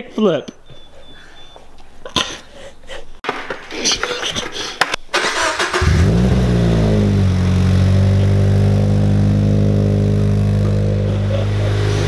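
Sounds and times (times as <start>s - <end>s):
car engine starting and idling: 5.1s - 12.0s.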